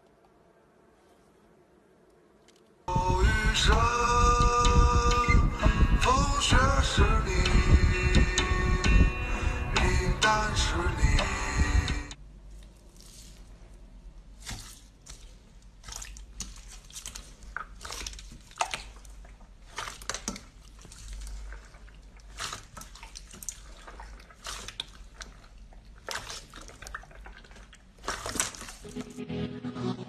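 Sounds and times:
sticky wet squishes: 12.5s - 29.1s.

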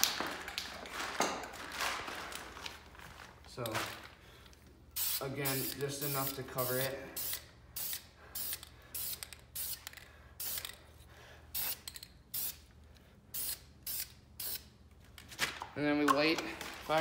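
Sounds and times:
spray paint can hissing: 5.0s - 10.8s, 11.5s - 12.6s, 13.3s - 14.7s.

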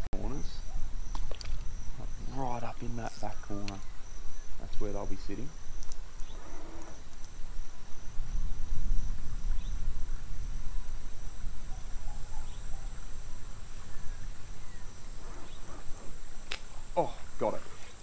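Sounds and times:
insects chirring: 0.0s - 18.0s.

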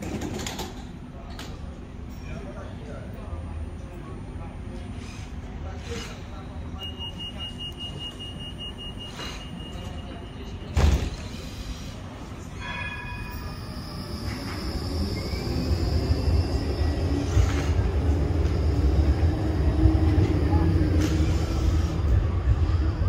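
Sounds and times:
tram wheels rumbling: 12.1s - 23.0s
high wheel squeal: 12.6s - 17.8s.

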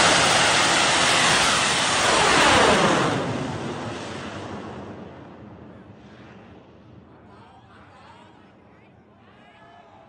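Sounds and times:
rocket launching with rushing noise: 0.0s - 5.4s.

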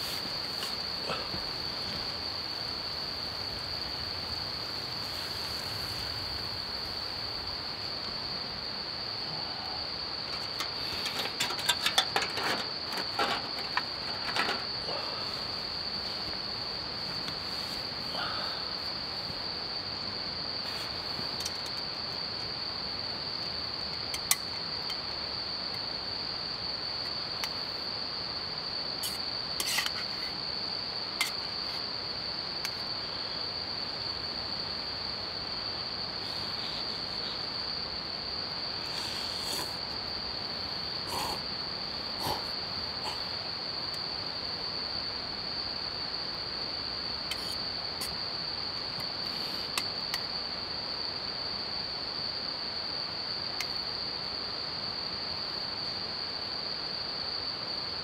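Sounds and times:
crickets chirring: 0.0s - 58.0s
clicks and rattles: 10.3s - 14.7s.

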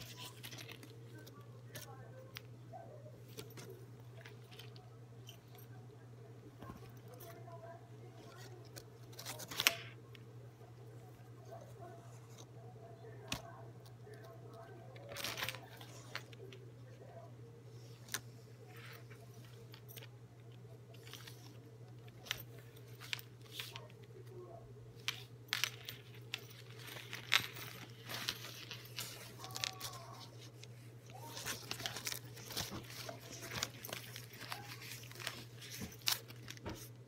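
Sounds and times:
steady low hum: 0.0s - 37.0s
fabric rustling: 25.0s - 37.0s.

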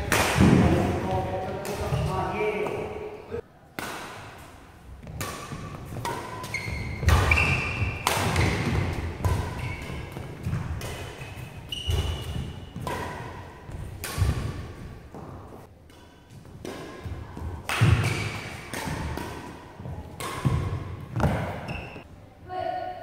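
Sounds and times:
rackets striking shuttlecock: 3.8s - 22.0s
shoes squeaking on court: 5.0s - 12.8s, 20.4s - 22.1s.

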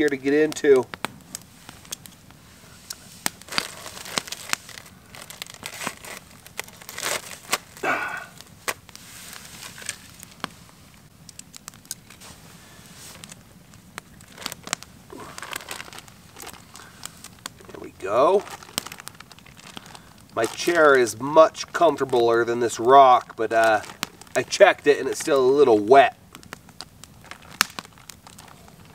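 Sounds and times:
campfire crackling: 0.0s - 28.9s
plastic bag crinkling: 3.2s - 10.6s, 11.2s - 28.9s.

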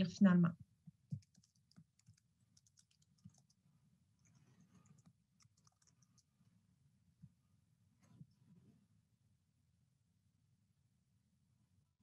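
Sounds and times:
faint computer clicks: 1.1s - 3.6s, 4.3s - 6.3s.

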